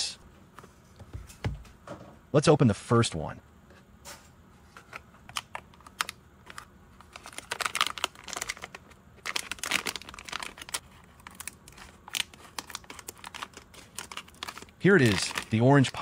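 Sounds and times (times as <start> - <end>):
metallic bag crinkling: 6.0 - 16.0.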